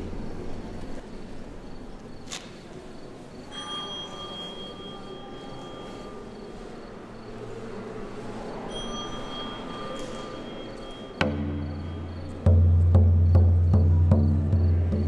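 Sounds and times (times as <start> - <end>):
small metal chime ringing: 3.5 - 6.2, 8.7 - 12.4.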